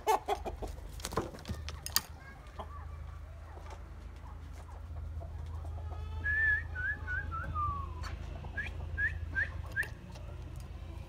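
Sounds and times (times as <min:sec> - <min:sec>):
person whistling: 0:06.3 - 0:08.0.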